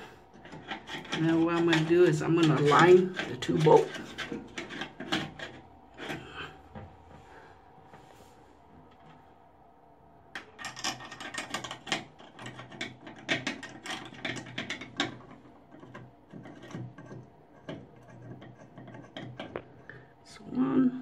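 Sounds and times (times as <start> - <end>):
metal plate clicks and rattles: 0.4 - 6.2, 10.4 - 19.7.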